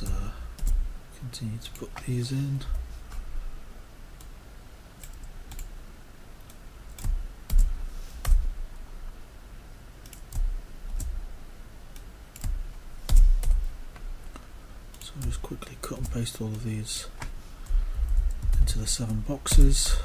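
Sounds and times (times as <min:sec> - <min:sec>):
keyboard and mouse clicks: 0:06.4 - 0:08.5, 0:10.0 - 0:11.2.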